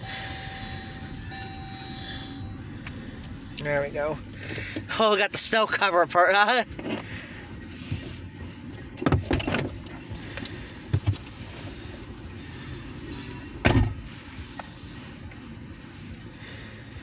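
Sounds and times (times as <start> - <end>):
train rumbling past: 0.0 - 5.2.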